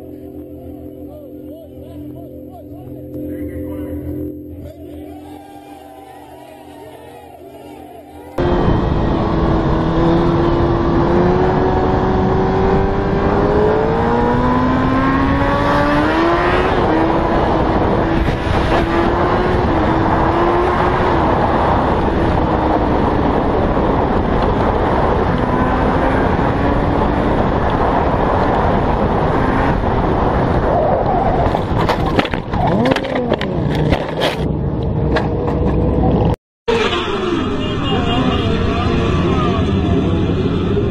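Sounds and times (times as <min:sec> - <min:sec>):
wind noise on microphone: 0:08.4 - 0:36.4
motorcycle engine accelerating: 0:08.4 - 0:40.9.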